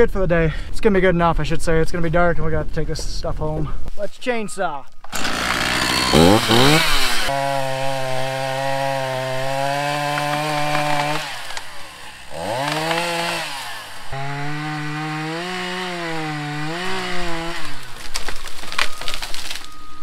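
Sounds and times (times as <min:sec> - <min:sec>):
chainsaw cutting wood: 0:05.0 - 0:19.8.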